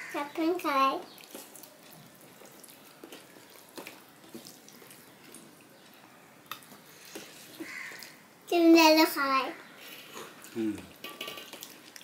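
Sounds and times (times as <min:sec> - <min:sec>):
fingers squishing rice and curry: 0:01.0 - 0:08.2, 0:10.1 - 0:12.0.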